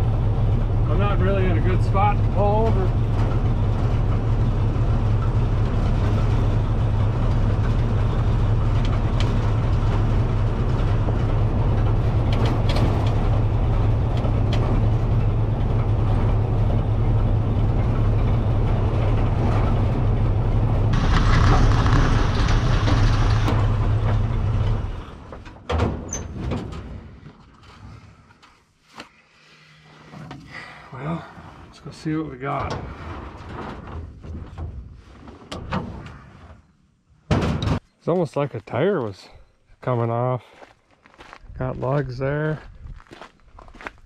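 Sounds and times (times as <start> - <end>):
race car engine running: 0.0 - 25.2
harsh rushing noise: 17.9 - 25.0.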